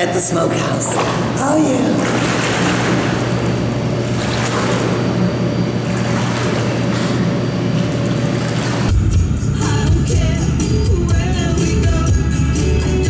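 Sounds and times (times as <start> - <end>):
pool water splashing: 0.0 - 11.4
low hum: 0.0 - 13.0
music with tambourine: 8.9 - 13.0.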